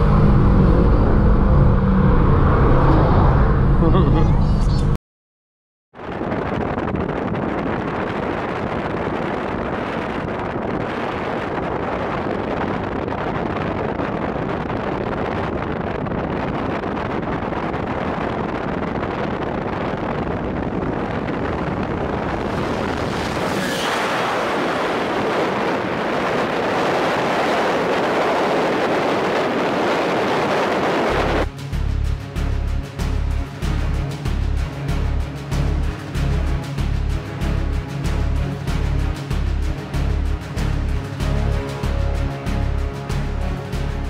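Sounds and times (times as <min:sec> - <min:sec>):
car road noise: 0:00.0 - 0:05.0, 0:06.0 - 0:44.0
wind buffeting microphone: 0:06.0 - 0:32.6.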